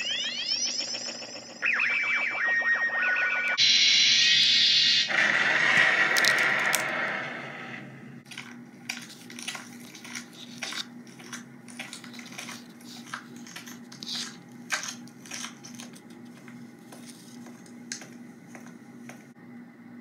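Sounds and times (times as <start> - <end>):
steady low hum: 0.0 - 20.0
objects handled clicks and scrapes: 8.2 - 19.2.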